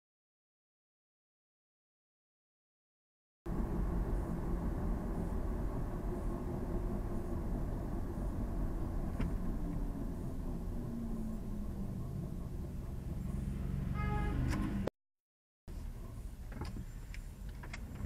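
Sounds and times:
car engine and tyre rumble: 0:03.5 - 0:14.9, 0:15.7 - 0:18.0.

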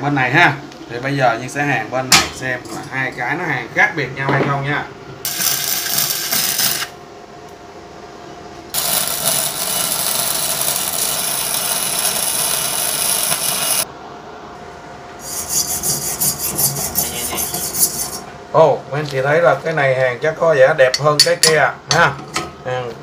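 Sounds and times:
welding arc crackling hiss: 0:05.2 - 0:07.0, 0:08.7 - 0:13.9
hand tool rasping on metal: 0:15.2 - 0:18.2.

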